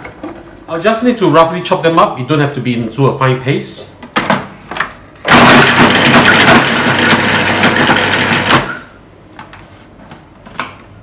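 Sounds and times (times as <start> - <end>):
food processor chopping: 5.3 - 8.8.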